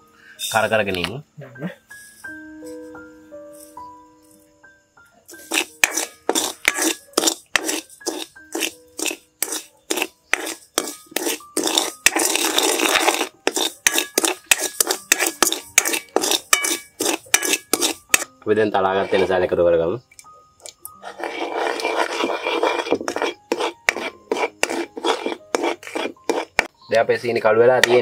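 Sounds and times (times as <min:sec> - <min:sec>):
metal spatula scraping wok: 0:05.3 - 0:19.5, 0:20.8 - 0:28.0.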